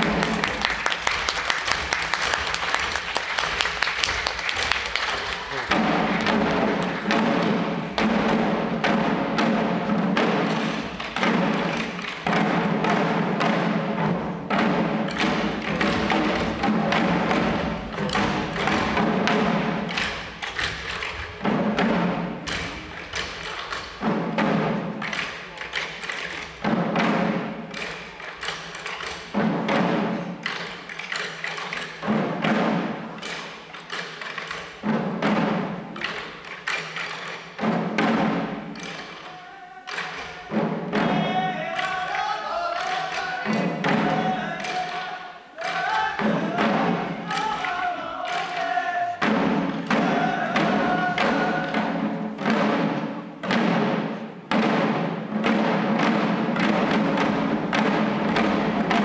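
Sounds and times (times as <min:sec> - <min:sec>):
drums beating in rhythm: 0:00.0 - 0:59.0.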